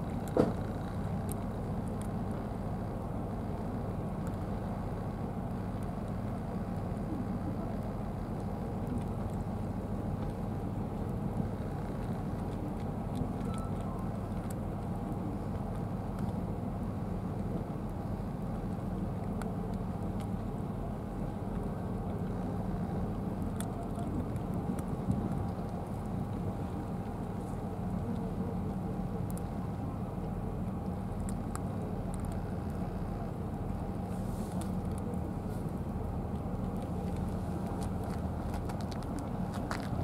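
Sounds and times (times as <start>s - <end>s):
low rumble: 0.0s - 40.0s
cats crunching dry kibble: 8.2s - 40.0s.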